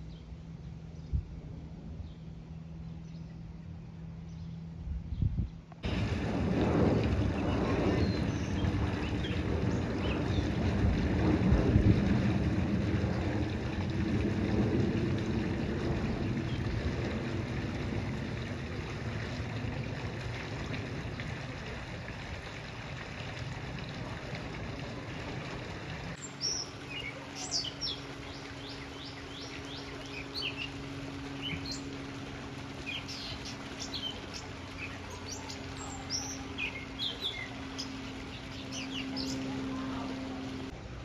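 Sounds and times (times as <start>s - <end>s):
songbirds chirping: 0.0s - 5.9s, 7.3s - 10.8s, 26.1s - 40.7s
distant aircraft rumble: 0.0s - 41.0s
low hum: 0.0s - 41.0s.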